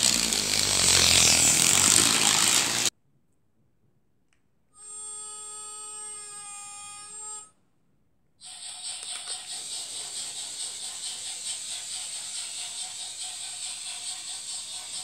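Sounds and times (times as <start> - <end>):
hissing rattling noise: 0.0 - 2.9, 8.4 - 15.0.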